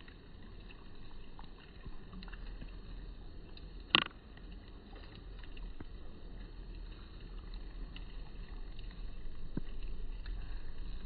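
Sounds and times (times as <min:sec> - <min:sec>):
faint ticks: 0:00.0 - 0:11.0
low outdoor rumble: 0:00.0 - 0:11.0.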